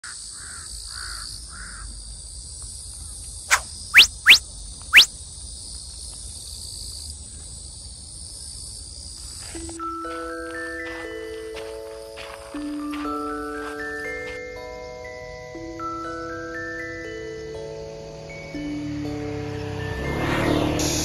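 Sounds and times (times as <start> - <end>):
insects trilling: 0.0 - 20.8
loud rising whistles: 3.5 - 5.1.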